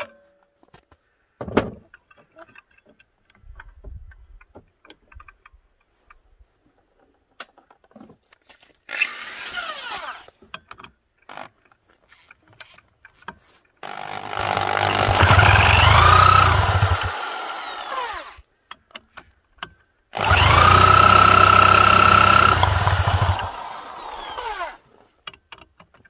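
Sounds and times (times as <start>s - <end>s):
metallic clicks and knocks: 1.7s - 6.2s, 25.2s - 26.0s.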